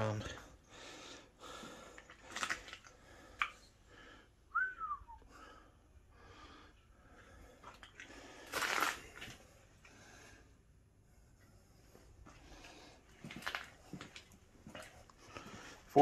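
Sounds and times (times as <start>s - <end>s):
person breathing: 0.4s - 2.2s, 2.9s - 4.4s, 5.2s - 8.7s, 9.4s - 13.2s, 15.2s - 16.0s
short falling whistle: 4.5s - 5.3s.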